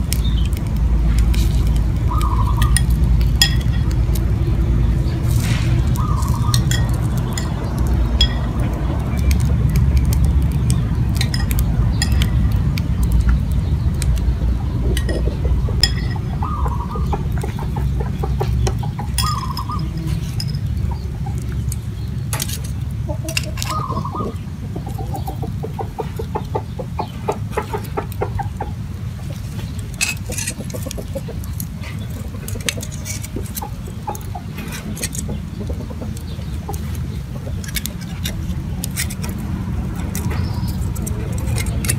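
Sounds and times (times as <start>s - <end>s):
chickens clucking: 0.0s - 41.9s
steady low rumble: 0.0s - 41.9s
metal utensils clinking on bowls: 1.3s - 4.2s, 5.3s - 13.8s, 14.9s - 20.8s, 21.6s - 24.3s, 30.0s - 35.3s, 37.6s - 41.9s.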